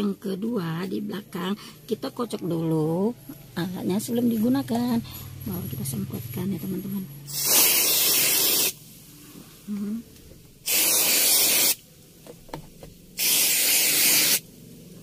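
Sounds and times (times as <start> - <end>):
aerosol can spraying: 7.3 - 8.8, 10.6 - 11.8, 13.1 - 14.5.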